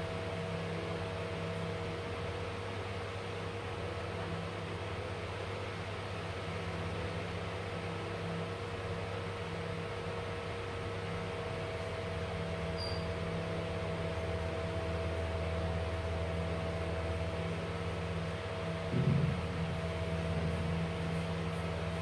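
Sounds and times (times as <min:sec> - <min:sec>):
mechanical hum with held tones: 0:00.0 - 0:22.0
low thump: 0:18.9 - 0:19.7.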